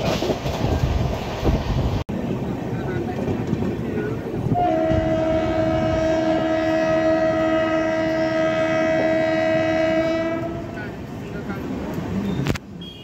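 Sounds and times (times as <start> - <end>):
moving train rumble: 0.0 - 13.0
locomotive horn blast: 4.5 - 11.0.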